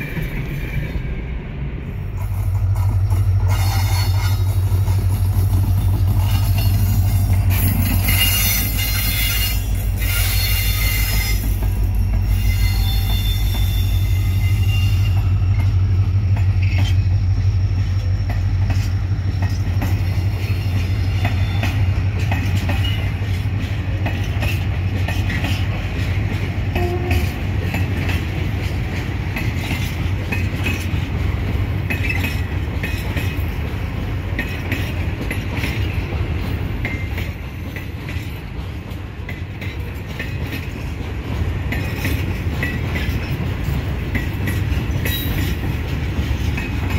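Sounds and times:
locomotive engine drone: 0.0s - 35.3s
high wheel squeal: 3.4s - 4.7s, 6.2s - 11.6s, 12.2s - 15.8s.

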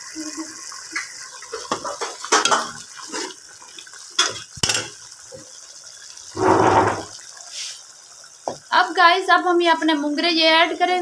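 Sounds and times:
metal spoon clinking in pot: 4.2s - 4.9s
gravy sloshing: 6.4s - 7.1s.

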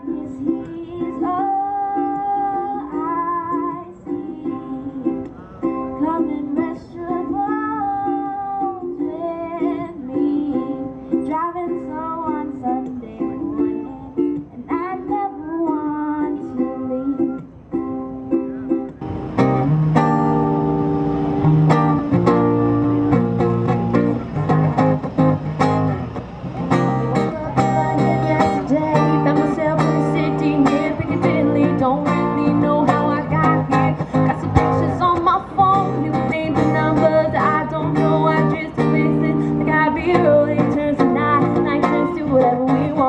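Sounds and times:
woman singing: 0.0s - 17.5s, 27.5s - 43.0s
acoustic guitar strummed: 0.0s - 43.0s
strummed ukulele: 0.0s - 43.0s.

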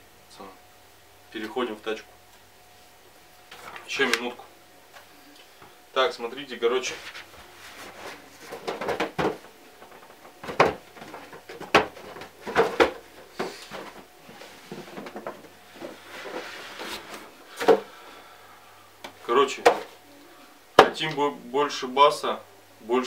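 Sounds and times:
packaging knocks and clatters: 8.5s - 14.0s.

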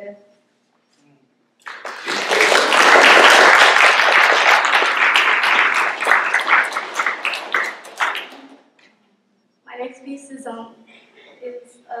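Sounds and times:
audience applauding: 1.6s - 8.6s.

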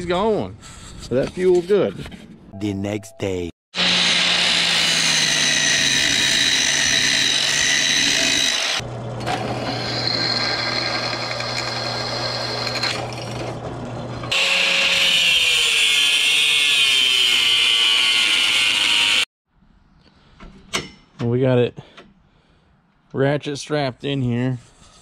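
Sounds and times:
drill press drilling: 3.8s - 13.6s
angle grinder cutting steel: 3.8s - 19.3s.

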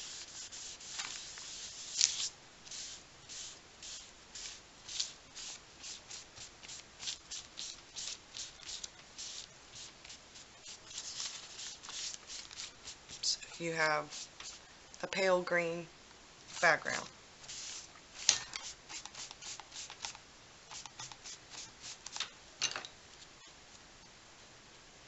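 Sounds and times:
wipe brushing on paper: 0.0s - 13.4s, 14.0s - 14.6s, 17.4s - 20.1s, 20.7s - 22.2s.

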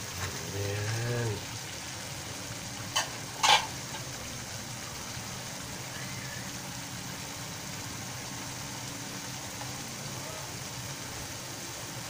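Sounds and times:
metal tongs clanking on wok: 2.9s - 4.0s.

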